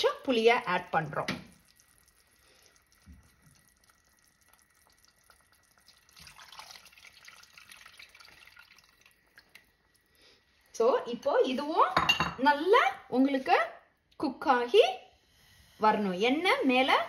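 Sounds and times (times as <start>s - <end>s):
water trickling into pan: 0.3s - 10.8s.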